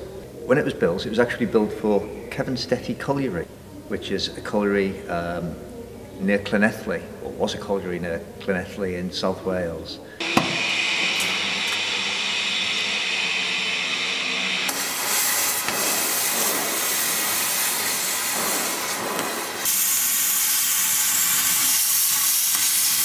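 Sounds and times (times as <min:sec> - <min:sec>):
cutting torch hissing: 0:10.2 - 0:23.0.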